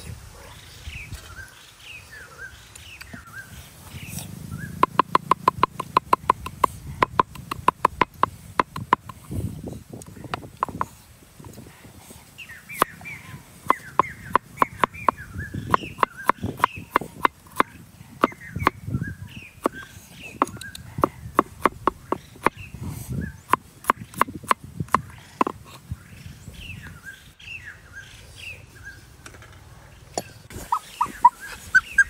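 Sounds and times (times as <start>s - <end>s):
knife chopping on wooden board: 4.8s - 9.2s, 13.7s - 18.8s, 19.6s - 22.6s.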